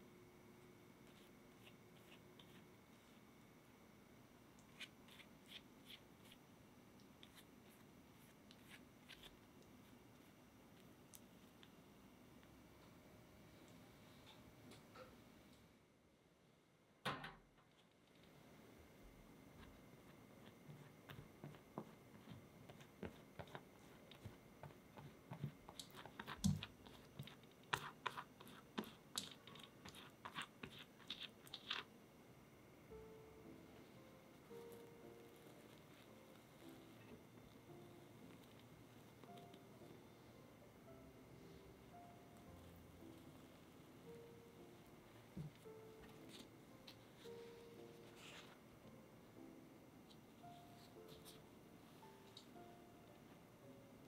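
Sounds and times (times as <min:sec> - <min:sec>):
pastry brush dabbing dough: 0:00.9 - 0:03.6, 0:04.5 - 0:11.9, 0:19.4 - 0:31.9, 0:33.7 - 0:40.1, 0:41.8 - 0:48.6.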